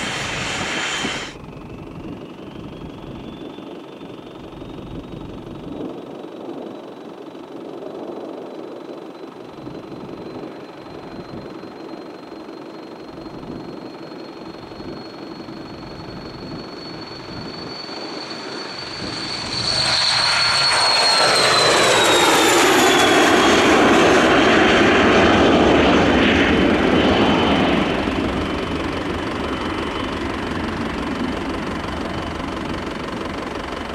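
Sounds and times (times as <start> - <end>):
jet roar: 0.0 - 4.2, 9.6 - 33.9
jet turbine whine: 0.0 - 33.9.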